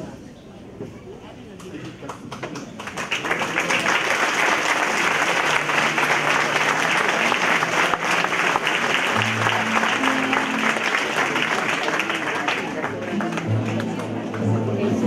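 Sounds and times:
congregation applauding: 0:02.3 - 0:15.0.

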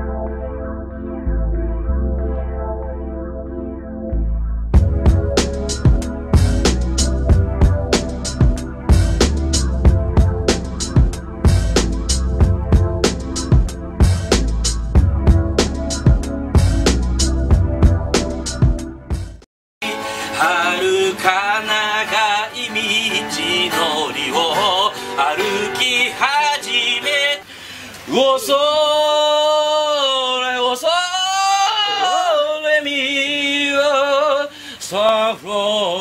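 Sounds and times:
strummed acoustic guitar: 0:19.8 - 0:27.4
man singing with vibrato: 0:19.8 - 0:36.0.

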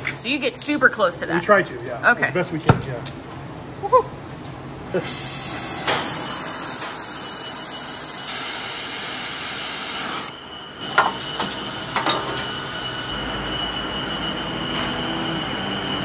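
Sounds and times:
torch flame hissing: 0:05.0 - 0:13.1
water sizzling on hot metal: 0:05.1 - 0:13.1.

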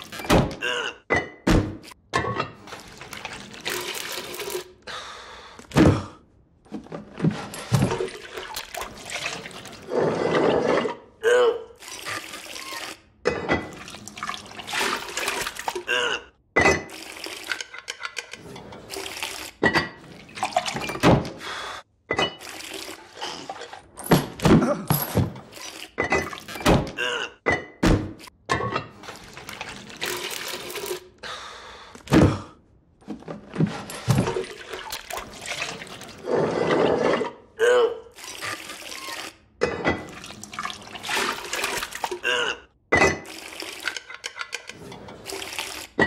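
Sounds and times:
liquid splashing: 0:40.1 - 0:42.2.

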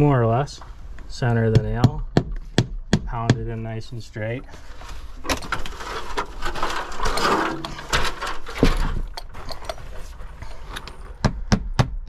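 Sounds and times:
rustling and scraping: 0:04.2 - 0:11.2
hammer striking nail: 0:11.2 - 0:12.0.

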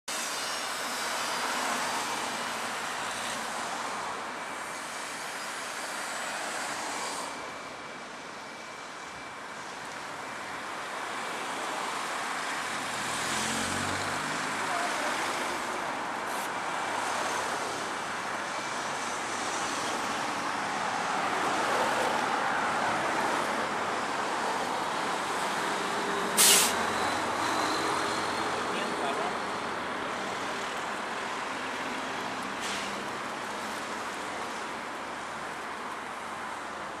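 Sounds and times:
road traffic noise: 0:00.1 - 0:37.0
short sharp hiss: 0:26.4 - 0:26.8.

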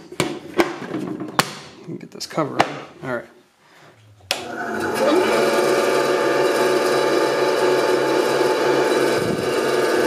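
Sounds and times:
bandsaw motor hum and blade whir: 0:04.4 - 0:10.0.

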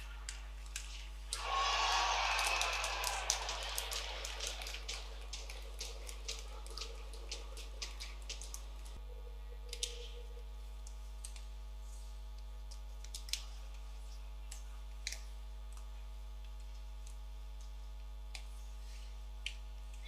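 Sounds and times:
low arena hum: 0:00.0 - 0:12.6.

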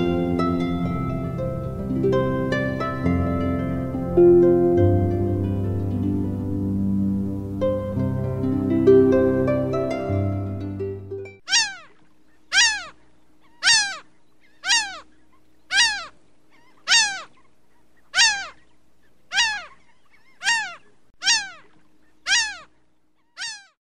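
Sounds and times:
background music: 0:00.0 - 0:11.4
rising and falling animal call: 0:11.4 - 0:23.8.

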